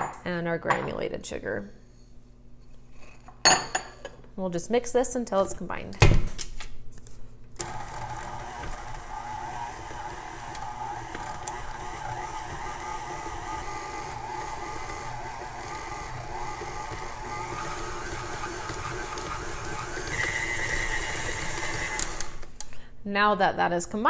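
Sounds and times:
stand mixer motor humming: 7.6s - 22.5s.

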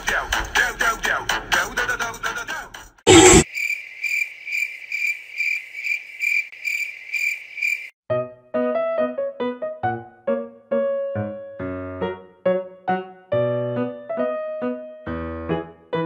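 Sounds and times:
high cricket-like chirping: 3.2s - 8.0s
piano-like music notes: 8.1s - 16.0s.

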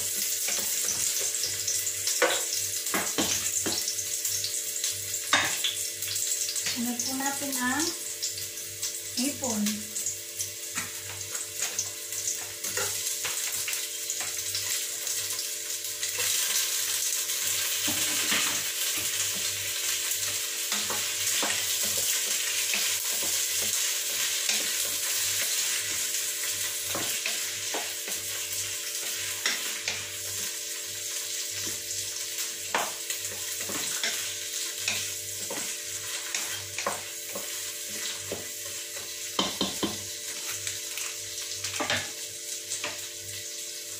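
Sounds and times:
prawns sizzling in a pot: 0.0s - 43.9s
spatula knocking against pot: 39.4s - 40.0s.

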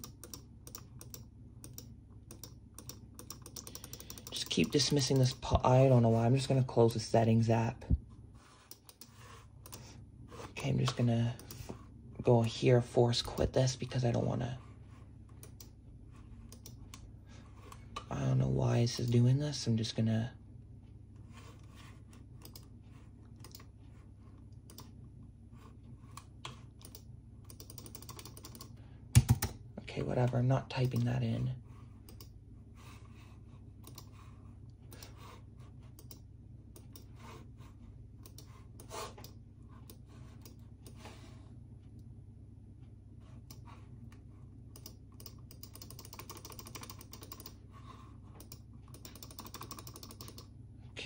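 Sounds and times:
steady low hum: 0.0s - 51.0s
keyboard key clicks: 26.5s - 29.6s
faint keyboard keystrokes: 48.4s - 50.5s.

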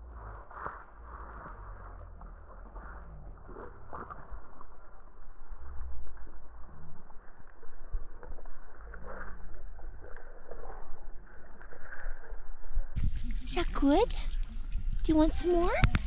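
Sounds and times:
sheep chewing watermelon: 0.6s - 12.4s
wind buffeting microphone: 12.6s - 16.0s.

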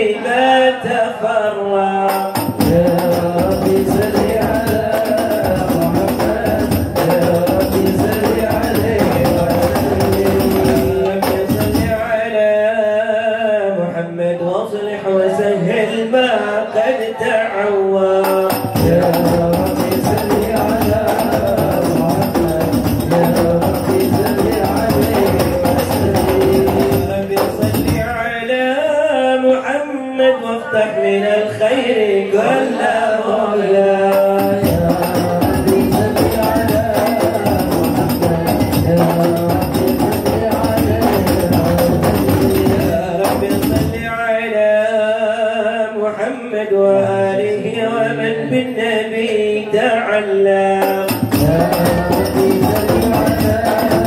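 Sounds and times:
male voices singing devotional song: 0.0s - 54.0s
frame drums beating fast: 2.1s - 12.2s, 18.2s - 28.3s, 34.1s - 44.2s, 50.8s - 54.0s.

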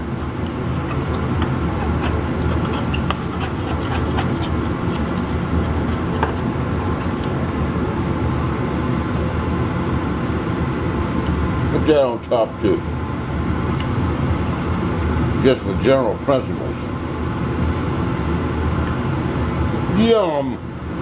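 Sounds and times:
low machine hum: 0.0s - 21.0s
knife scraping metal pan: 1.7s - 7.2s.

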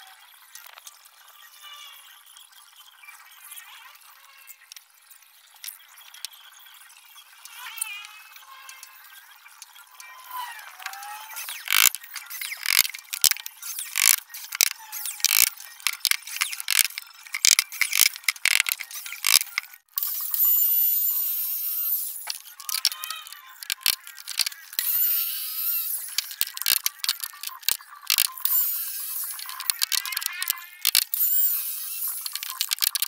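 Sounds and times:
power tool whirring: 10.1s - 33.0s
cordless drill clicking and ratcheting: 10.6s - 33.0s.

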